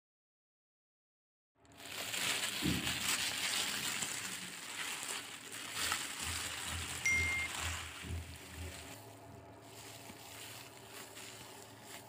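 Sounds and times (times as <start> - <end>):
plastic bag crinkling: 1.6 - 12.0
short high beep: 7.1 - 7.5.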